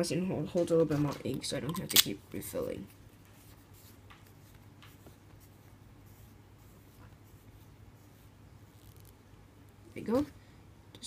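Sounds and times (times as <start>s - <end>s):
low steady hum: 0.0s - 11.0s
pen ticks and rustles: 3.2s - 5.6s.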